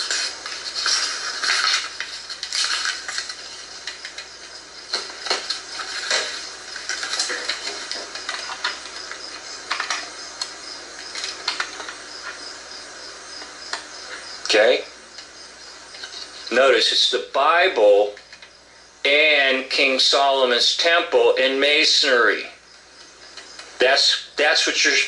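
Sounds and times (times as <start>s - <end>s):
paper snapping: 0.0s - 4.2s
pages rustling and turning: 0.0s - 12.4s.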